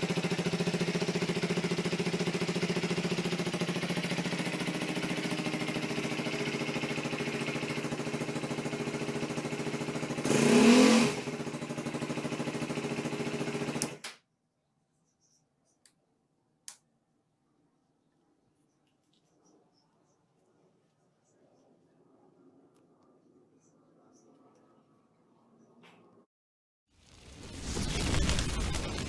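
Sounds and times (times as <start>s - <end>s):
motorcycle engine idling: 0.0s - 10.5s, 11.2s - 14.0s.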